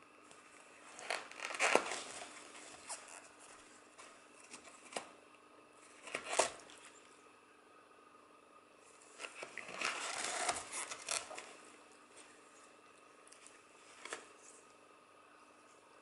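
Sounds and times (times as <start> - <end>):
cat tearing paper towel: 0.9 - 3.2, 6.0 - 6.7, 9.2 - 11.6.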